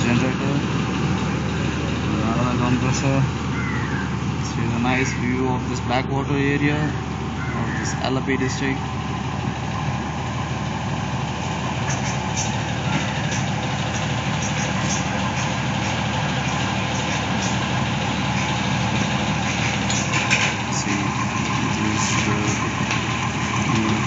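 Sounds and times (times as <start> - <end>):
boat engine droning: 0.0 - 24.0.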